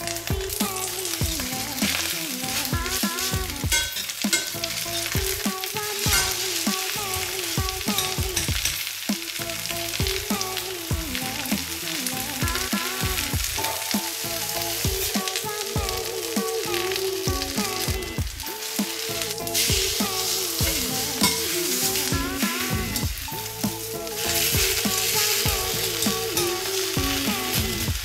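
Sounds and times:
background music: 0.0 - 28.0
battered leaves sizzling in oil: 0.0 - 28.0
metal tongs scraping pan: 2.6 - 5.2, 6.0 - 6.5, 21.2 - 22.1.

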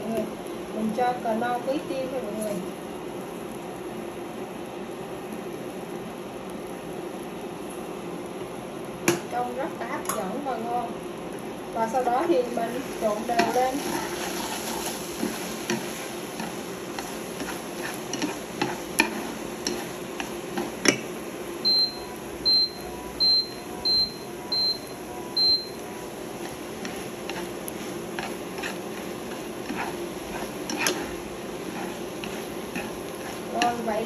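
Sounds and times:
food sizzling in frying pan: 0.0 - 34.0
chopsticks scraping pan: 12.8 - 21.0, 26.3 - 34.0.

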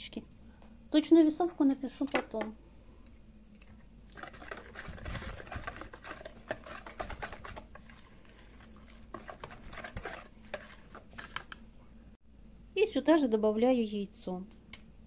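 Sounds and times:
whisk tapping and scraping bowl: 4.1 - 11.6.

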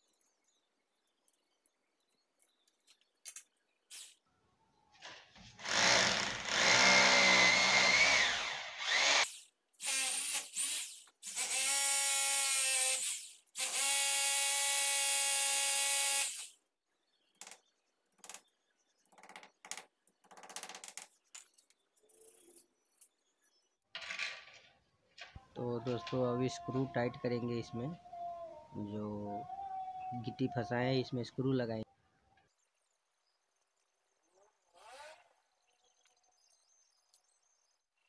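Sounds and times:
hammer drill boring masonry: 5.6 - 16.5.

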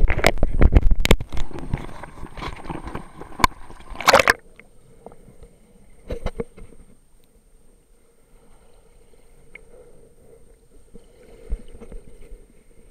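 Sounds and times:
water sloshing: 1.0 - 5.2.

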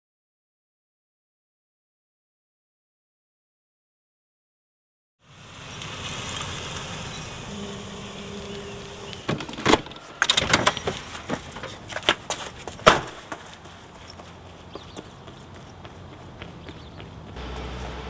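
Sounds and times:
car running hum: 5.3 - 18.0
keys jingling: 9.9 - 13.2.

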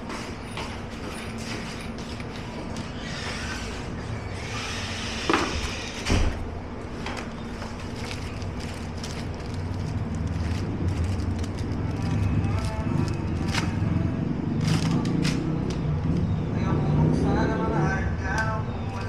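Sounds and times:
steady low hum: 0.0 - 19.0
packaging rustling: 6.8 - 16.0.

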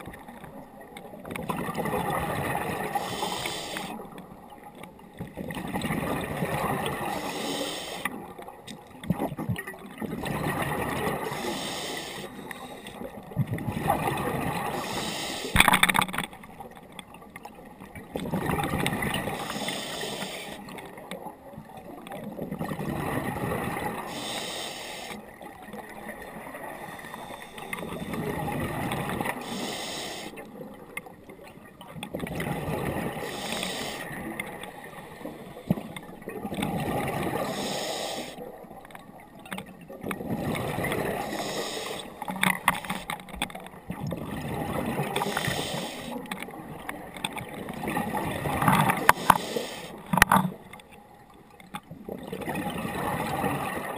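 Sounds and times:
diver breathing through regulator: 2.8 - 4.0, 7.0 - 8.2, 11.1 - 13.1, 14.6 - 15.7, 19.2 - 20.7, 23.9 - 25.2, 26.7 - 28.5, 29.1 - 30.4, 33.0 - 34.2, 37.2 - 38.4, 40.8 - 43.1, 45.0 - 46.2, 48.8 - 50.2.

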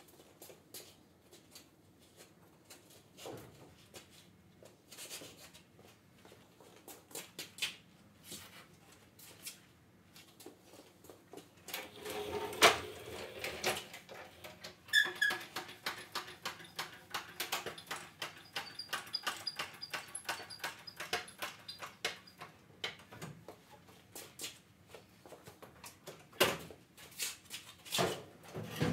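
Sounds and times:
thin high squeaks: 14.9 - 15.5, 17.8 - 22.4.

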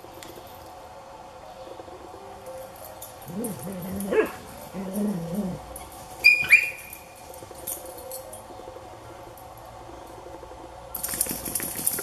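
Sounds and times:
dogs whining grumbles: 3.2 - 6.6
dog yips: 3.5 - 4.4, 6.2 - 6.9.

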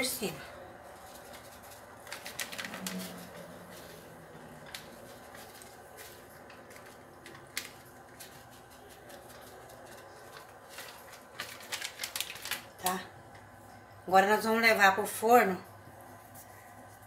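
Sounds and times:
plastic packet rustling: 0.8 - 13.1.

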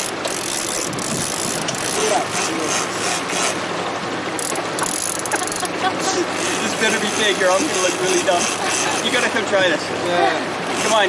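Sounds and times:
fishing reel ratchet clicking: 0.0 - 3.6, 4.4 - 5.7, 6.4 - 9.3, 10.7 - 11.0.

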